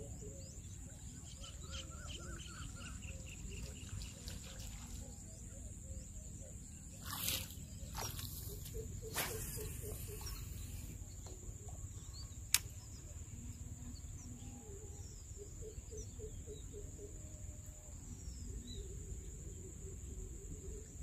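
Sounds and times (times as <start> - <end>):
birds chirping: 0.0 - 17.1
high insect drone: 6.3 - 21.0
sharp click: 12.5 - 12.8.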